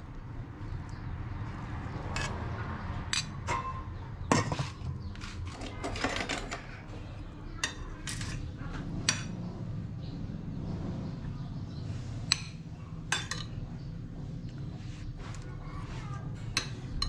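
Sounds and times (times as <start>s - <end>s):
metal spoon clinking on dishes: 3.1s - 4.8s, 5.5s - 6.8s, 12.3s - 13.6s.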